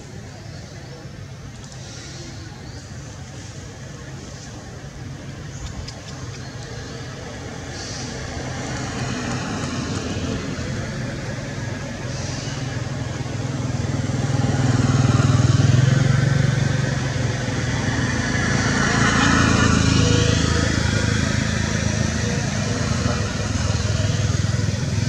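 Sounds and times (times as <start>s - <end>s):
vehicle engine running: 2.7s - 25.0s.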